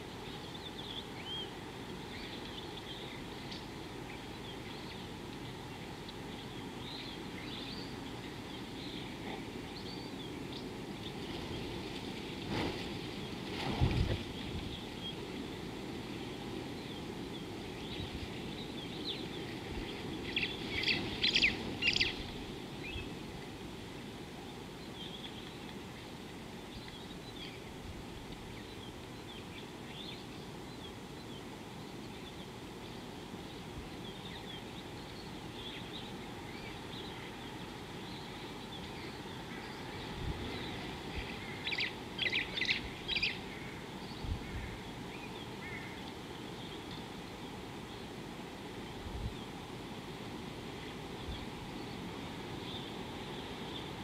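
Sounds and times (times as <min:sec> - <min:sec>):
low wind noise: 0:00.0 - 0:54.0
birds calling with sharp notes: 0:16.3 - 0:23.2, 0:28.5 - 0:48.1.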